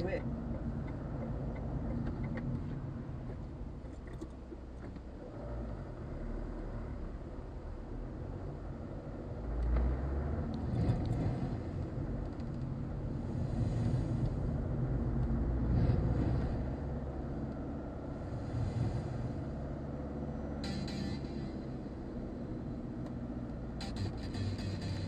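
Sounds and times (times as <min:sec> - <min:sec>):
car engine and road noise: 0:00.0 - 0:25.0.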